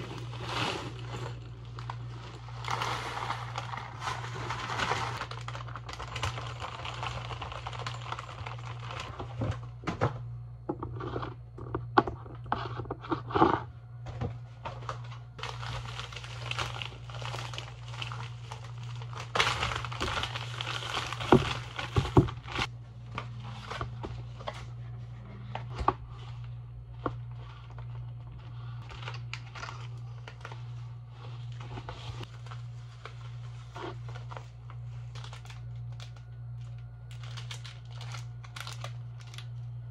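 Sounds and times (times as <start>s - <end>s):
granola pouring: 0.0s - 9.2s, 15.4s - 22.7s
plastic bags crinkling: 0.0s - 9.8s, 14.8s - 24.6s, 26.1s - 39.9s
low hum: 0.0s - 39.9s.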